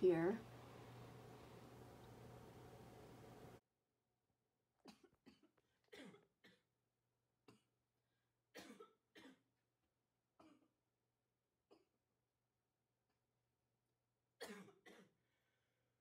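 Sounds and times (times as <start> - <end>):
low hum: 0.0 - 3.6.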